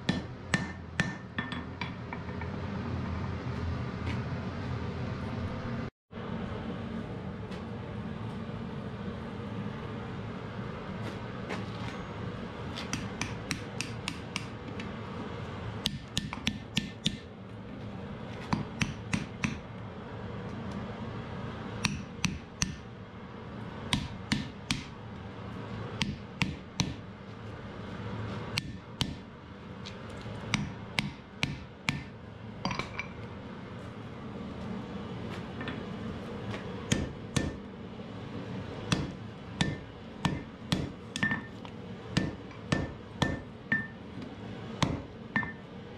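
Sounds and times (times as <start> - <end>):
hammer striking iron on anvil: 0.0 - 2.6, 12.8 - 14.6, 15.8 - 17.3, 18.5 - 19.7, 21.8 - 22.9, 23.9 - 24.9, 26.0 - 27.0, 28.6 - 29.2, 30.5 - 33.2, 36.9 - 37.6, 38.9 - 41.6, 42.2 - 44.0, 44.8 - 45.7.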